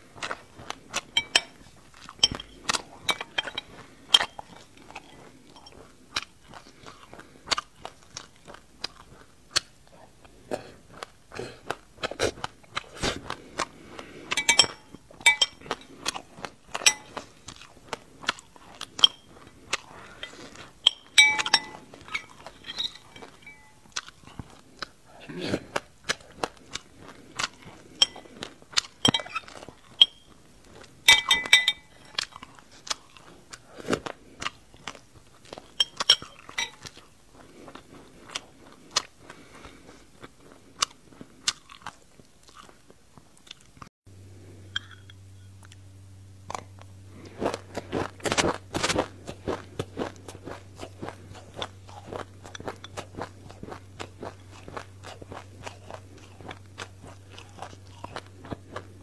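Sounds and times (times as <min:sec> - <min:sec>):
crunching and chewing seeds: 0:00.0 - 0:59.0
metal spoon ringing against glass bowl: 0:01.2 - 0:01.5, 0:02.2 - 0:03.6, 0:14.4 - 0:15.6, 0:16.8 - 0:17.1, 0:20.8 - 0:23.8, 0:31.1 - 0:32.2.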